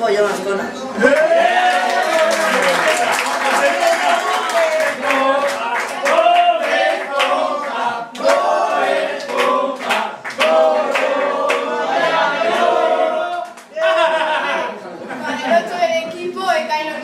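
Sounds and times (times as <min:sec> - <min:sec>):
group singing a chant: 0:03.6 - 0:13.6.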